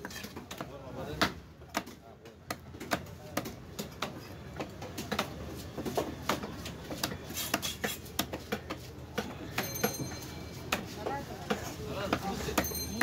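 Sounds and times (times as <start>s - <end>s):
knife chopping fish on wood: 0.0s - 5.4s.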